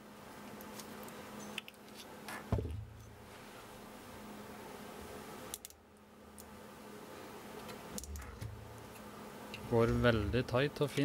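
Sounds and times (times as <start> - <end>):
frame thumping on wooden bench: 2.5 - 3.0
faint low hum: 2.5 - 11.0.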